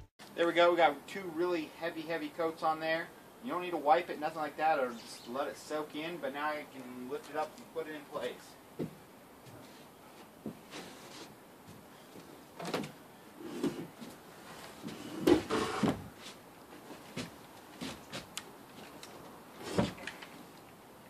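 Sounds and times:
wooden knocks and scraping: 19.6 - 20.2.

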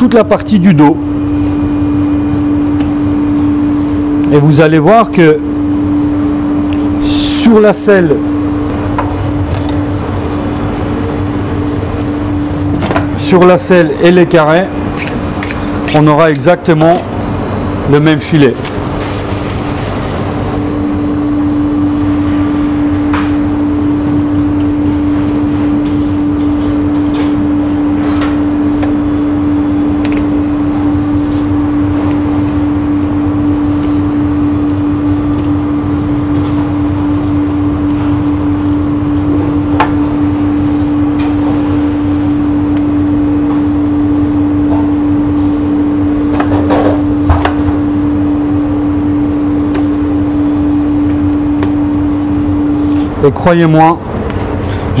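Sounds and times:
kitchen machine hum: 0.0 - 55.0.

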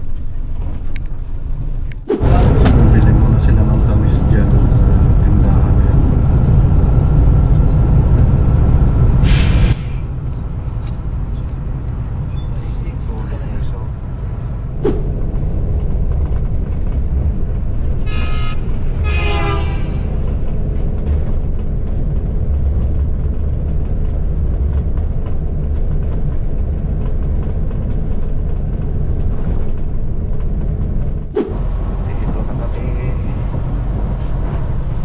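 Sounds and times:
bus engine and road rumble: 0.0 - 35.0
vehicle horn: 18.0 - 20.3.

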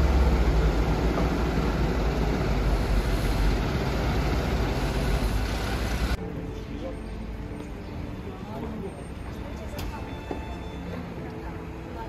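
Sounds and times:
diesel engine rumbling: 0.0 - 6.6.

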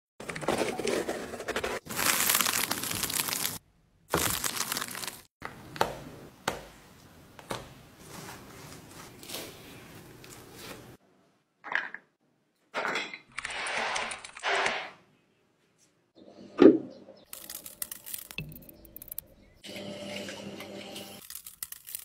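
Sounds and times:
fruit flesh tearing: 21.2 - 22.0.

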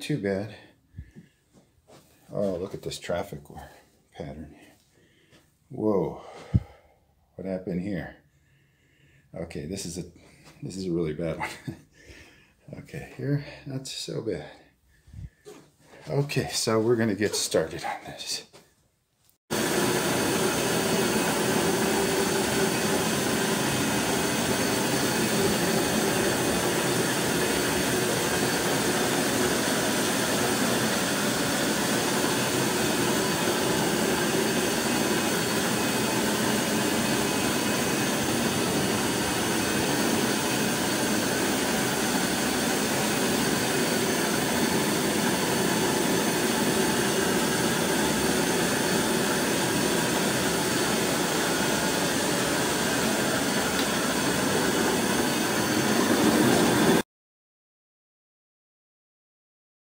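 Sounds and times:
carpet extractor vacuum roar: 19.5 - 57.0.

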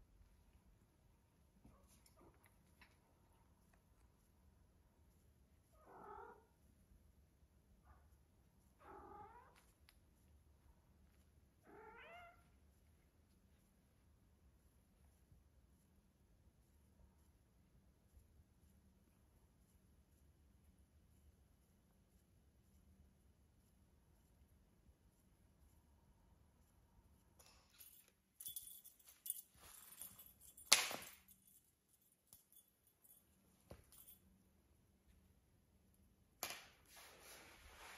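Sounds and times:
cat meowing softly: 5.7 - 6.5, 8.8 - 9.7, 11.6 - 12.6
rustling and scraping of felt: 36.8 - 37.9.

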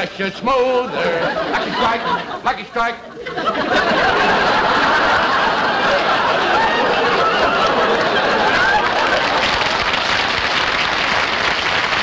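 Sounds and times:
audience laughing: 0.6 - 10.3.

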